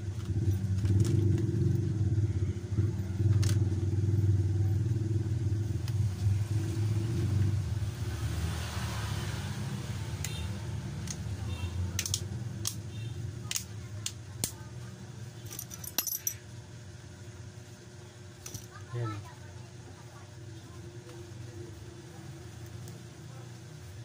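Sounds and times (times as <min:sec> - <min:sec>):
low mechanical hum: 0:00.0 - 0:24.0
small clicks handling phone parts: 0:11.0 - 0:11.3, 0:12.0 - 0:12.8, 0:13.5 - 0:14.6.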